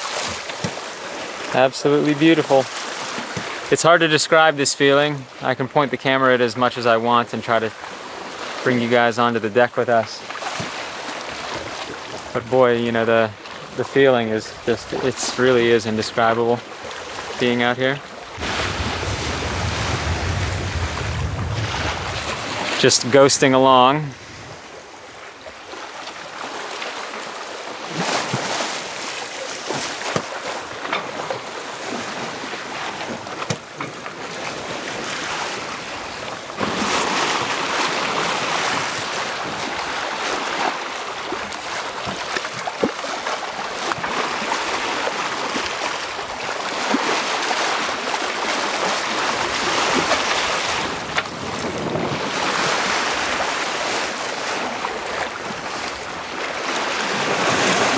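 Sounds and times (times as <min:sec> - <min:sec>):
water rushing along boat hull: 0:00.0 - 0:57.9
wind buffeting microphone: 0:18.3 - 0:22.8, 0:50.8 - 0:53.5.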